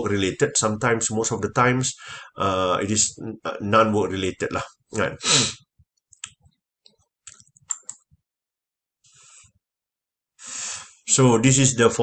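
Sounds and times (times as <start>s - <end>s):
computer clicks: 7.3s - 8.0s
short breath: 10.4s - 11.0s.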